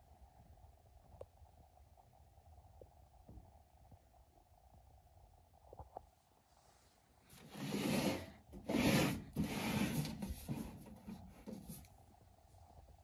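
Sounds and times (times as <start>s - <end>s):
case scraping on carpet: 7.4s - 11.8s.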